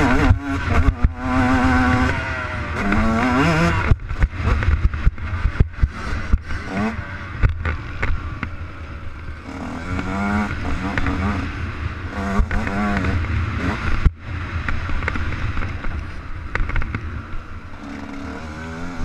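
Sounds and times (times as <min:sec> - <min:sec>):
motocross engine under hard throttle: 0:00.0 - 0:19.0
motorbike knocking and clattering: 0:12.4 - 0:17.1.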